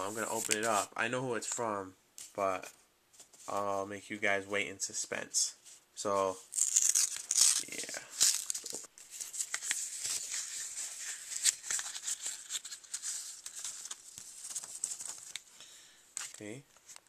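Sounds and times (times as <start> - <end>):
paper envelope tearing: 6.4 - 15.4.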